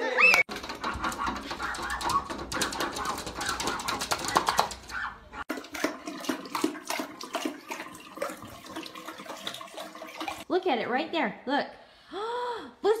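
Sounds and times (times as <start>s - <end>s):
dog lapping and slurping water: 0.5s - 10.5s
sink tap running: 0.5s - 10.5s.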